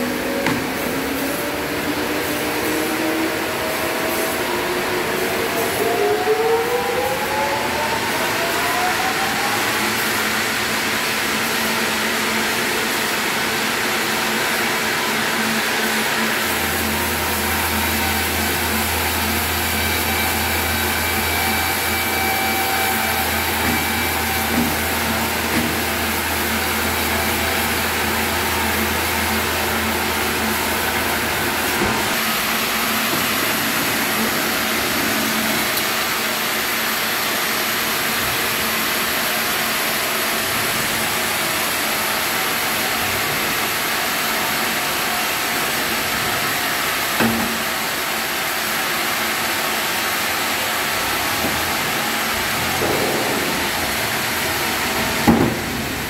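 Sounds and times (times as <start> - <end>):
band saw whirring: 14.0 - 36.2.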